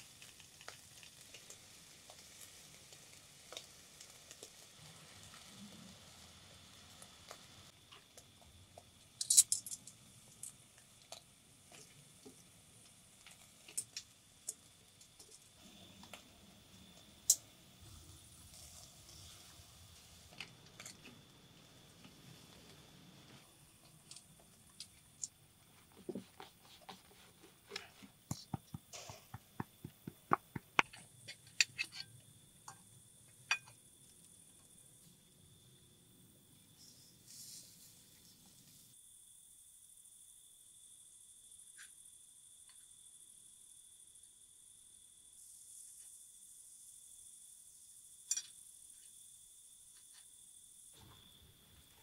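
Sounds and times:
metal tongs clinking on grill: 0:09.2 - 0:10.6, 0:33.5 - 0:33.8, 0:48.3 - 0:48.5.

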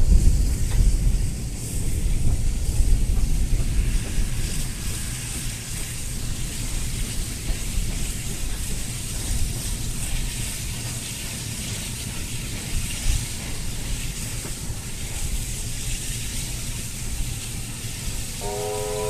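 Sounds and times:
steam hissing: 0:00.0 - 0:19.0
steam locomotive rumbling: 0:00.0 - 0:19.0
steam whistle chord: 0:18.4 - 0:19.0.

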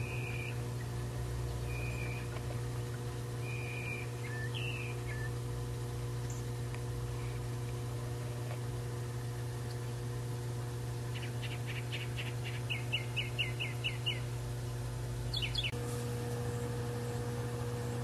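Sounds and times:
bird chirps: 0:00.0 - 0:00.6, 0:01.7 - 0:02.3, 0:03.4 - 0:05.4, 0:11.1 - 0:14.3, 0:15.3 - 0:15.8
songbird singing: 0:00.0 - 0:05.5, 0:06.1 - 0:07.7, 0:10.9 - 0:18.0
low hum: 0:00.0 - 0:18.0.

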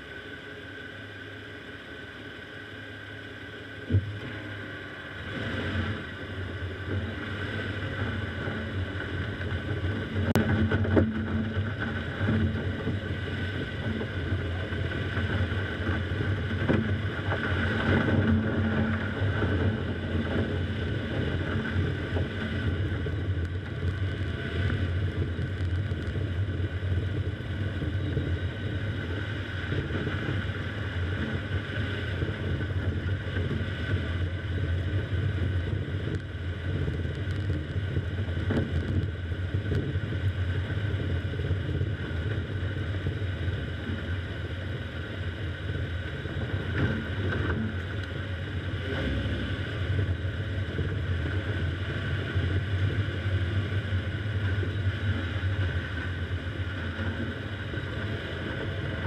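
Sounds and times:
car engine and tyre noise: 0:00.0 - 0:59.0.

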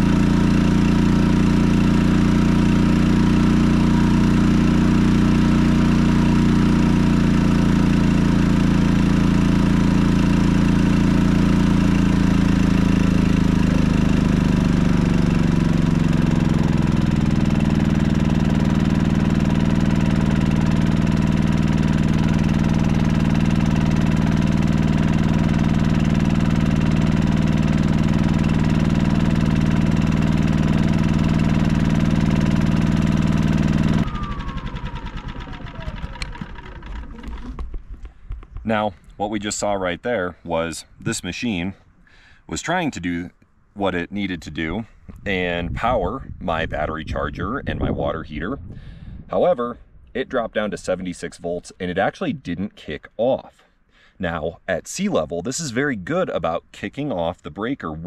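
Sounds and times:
generator engine running under load: 0:00.0 - 0:40.8, 0:47.0 - 0:49.3.

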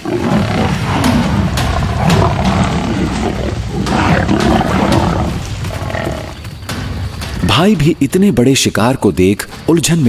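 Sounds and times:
lions growling loudly: 0:00.0 - 0:06.5.

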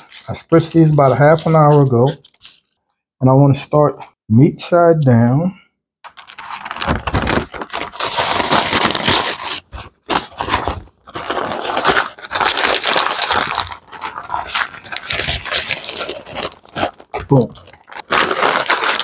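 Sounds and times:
paper rustling and crinkling: 0:06.1 - 0:19.0.

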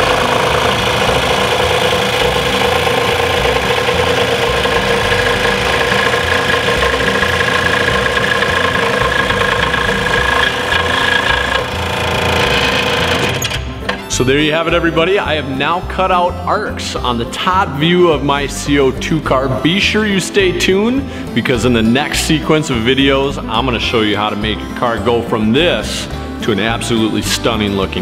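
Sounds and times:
scroll saw cutting wood: 0:00.0 - 0:14.1.

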